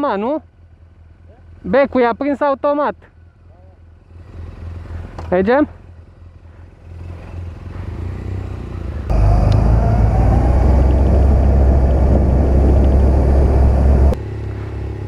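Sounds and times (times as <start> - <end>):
motorcycle low rumble: 3.1 - 15.0
motorcycles pulling away: 6.6 - 15.0
wind buffeting microphone: 9.1 - 14.2.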